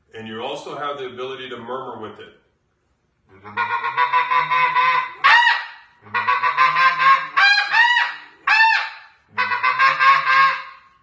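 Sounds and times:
goose call murmuring chatter: 3.3 - 10.7
goose call yelping notes: 3.4 - 10.9.

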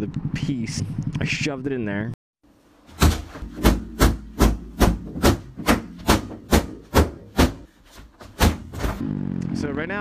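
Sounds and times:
stick whacking inflatable punching bag: 2.9 - 9.0.

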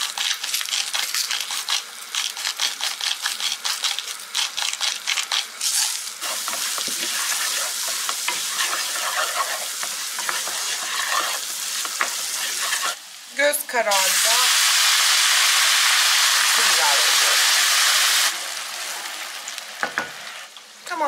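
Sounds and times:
grains sizzling in oil: 0.0 - 21.0
wooden spoon scraping a pan: 6.2 - 13.0.

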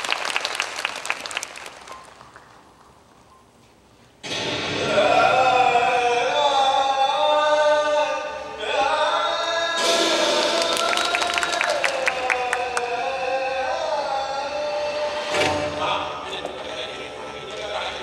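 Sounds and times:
choir-like sustained voices: 4.7 - 18.0.

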